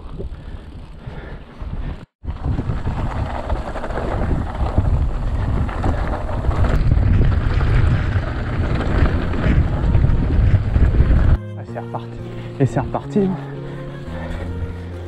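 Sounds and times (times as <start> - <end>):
wind buffeting microphone: 0.0 - 11.4.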